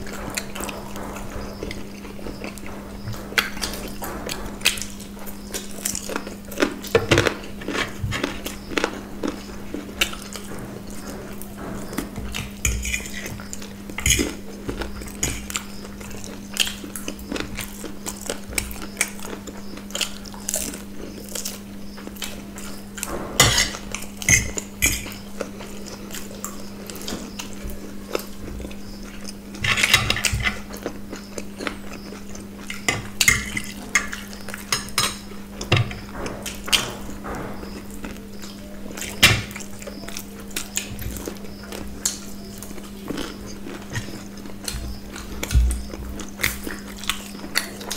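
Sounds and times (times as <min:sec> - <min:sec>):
cutlery clinking on plates: 0:11.6 - 0:13.4, 0:23.0 - 0:25.2, 0:29.6 - 0:30.6, 0:32.7 - 0:37.5.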